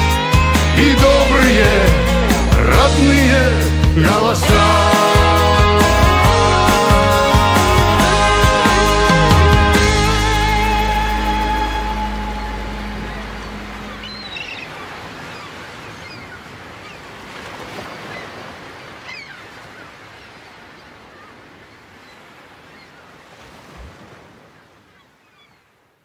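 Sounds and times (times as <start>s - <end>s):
waves: 0.0s - 26.0s
wind: 9.6s - 26.0s.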